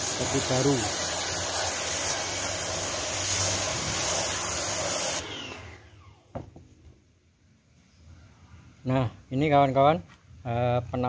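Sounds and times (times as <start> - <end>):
water jet hissing: 0.0 - 5.8.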